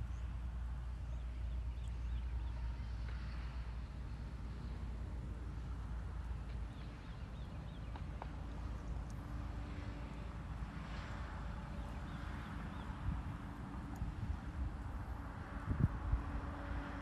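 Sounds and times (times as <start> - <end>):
wind rumble on microphone: 0.0 - 17.0.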